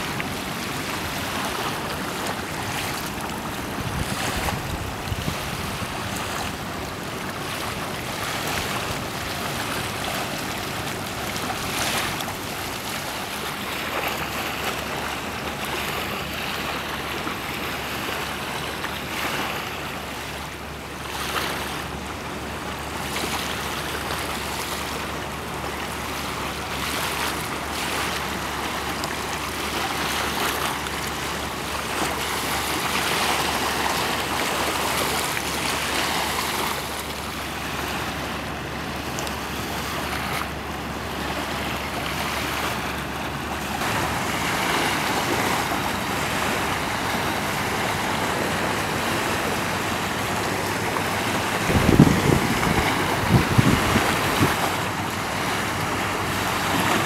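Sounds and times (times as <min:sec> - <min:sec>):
river water washing: 0:00.0 - 0:57.0
wind buffeting microphone: 0:03.6 - 0:06.4, 0:43.8 - 0:56.3.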